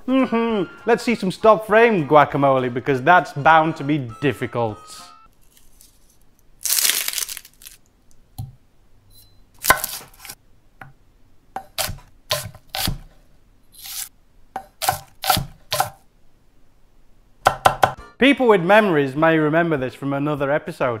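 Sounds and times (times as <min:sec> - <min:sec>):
crackling tearing sound: 0:05.3 - 0:07.9, 0:13.8 - 0:14.1
knife chopping on wooden board: 0:09.6 - 0:11.0, 0:11.6 - 0:13.1, 0:14.6 - 0:16.0.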